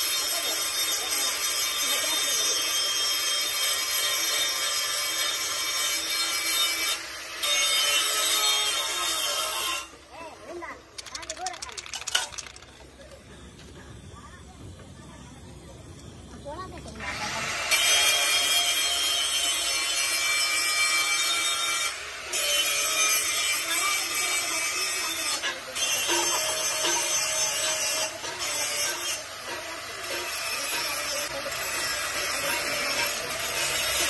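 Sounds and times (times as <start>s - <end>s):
spray paint can hissing: 11.0s - 13.0s.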